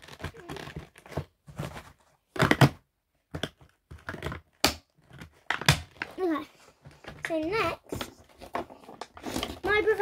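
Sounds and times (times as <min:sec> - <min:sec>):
plastic toys handled: 0:00.0 - 0:10.0.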